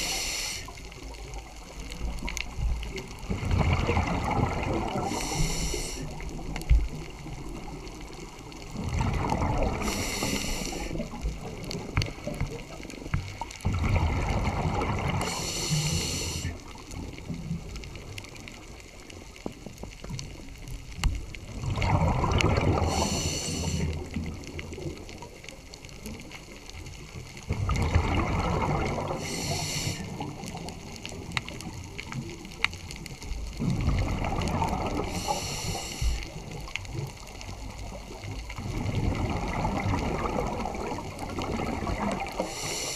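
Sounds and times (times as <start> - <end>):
diver breathing through regulator: 0.0 - 0.8, 4.9 - 6.2, 9.6 - 11.0, 15.1 - 16.6, 22.7 - 24.0, 29.0 - 30.3, 34.9 - 36.4, 42.4 - 42.9
bubbles rumbling and gurgling: 0.0 - 42.9.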